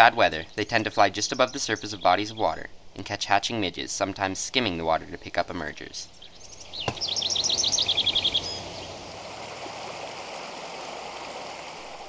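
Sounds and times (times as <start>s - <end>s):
songbird chirping: 6.0s - 9.4s
stream rushing: 8.8s - 12.0s.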